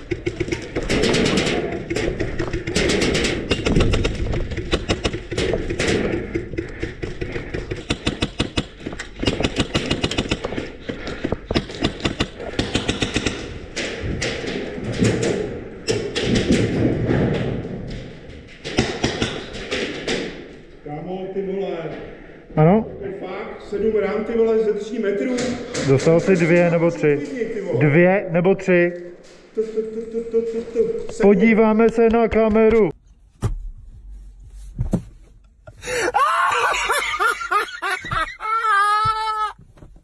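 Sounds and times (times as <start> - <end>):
airsoft guns firing: 0.0 - 10.7, 11.5 - 15.2.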